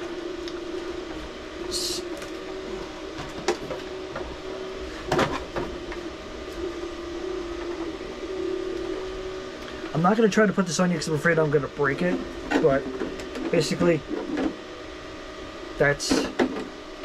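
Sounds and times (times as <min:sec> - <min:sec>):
background hum: 0:00.0 - 0:17.0.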